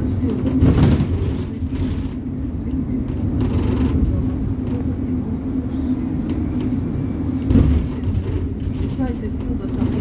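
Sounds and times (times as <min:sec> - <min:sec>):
bus engine and road drone: 0:00.0 - 0:10.0.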